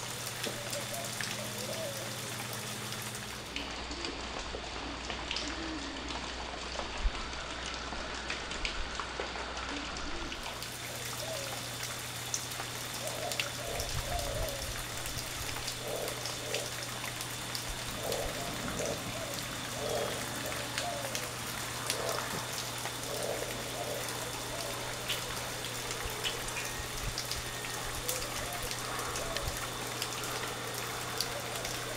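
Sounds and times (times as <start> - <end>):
low steady hum: 0.0 - 31.9
outdoor background hiss: 0.0 - 31.9.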